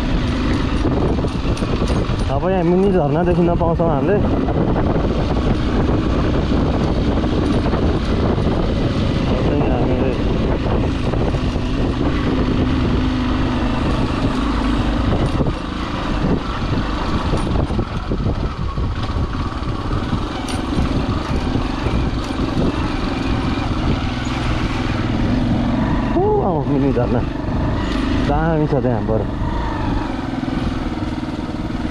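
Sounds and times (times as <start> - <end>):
motorcycle engine running: 0.0 - 31.9
wind rumble on microphone: 0.0 - 31.9.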